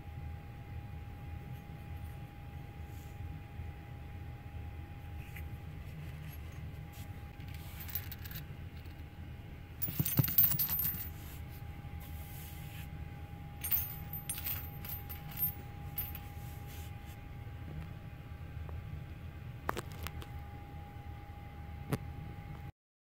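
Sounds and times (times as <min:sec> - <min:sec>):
steady low hum: 0:00.0 - 0:22.7
metal arrowheads clinking: 0:09.8 - 0:11.2, 0:13.6 - 0:16.2.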